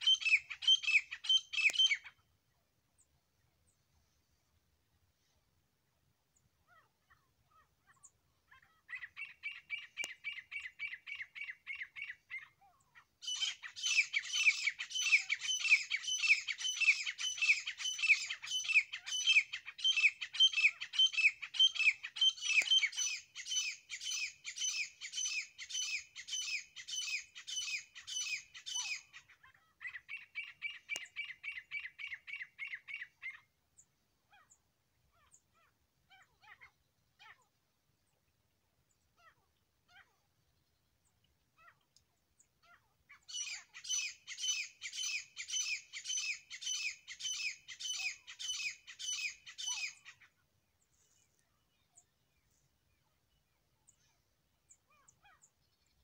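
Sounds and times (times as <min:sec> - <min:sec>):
francolin calling: 0:00.0 - 0:02.2, 0:06.7 - 0:33.5, 0:42.7 - 0:50.3.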